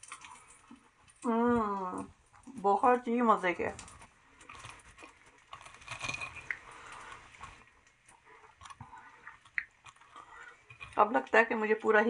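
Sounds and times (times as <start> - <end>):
fork crunching fried food: 3.8 - 11.0.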